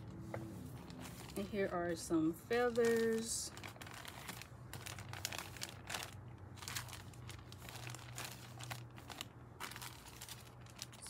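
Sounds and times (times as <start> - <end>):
packaging crinkling and rustling: 0.0 - 1.8, 2.5 - 11.0.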